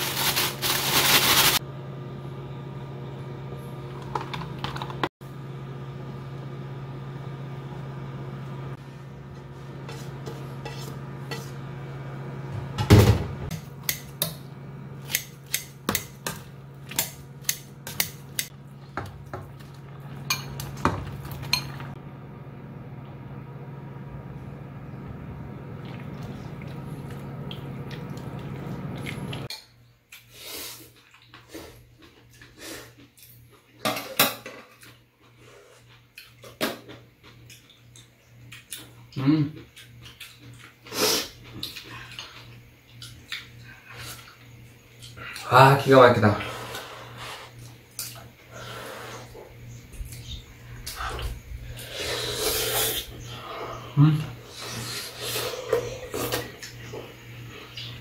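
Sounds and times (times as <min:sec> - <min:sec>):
steady low hum: 0:37.6 - 0:58.0.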